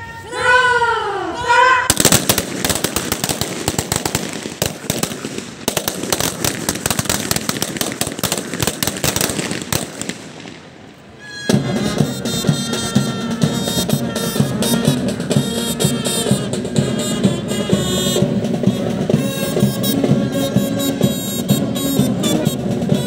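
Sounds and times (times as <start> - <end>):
rifles firing rolling shots: 1.9 - 10.9
band playing: 1.9 - 23.0.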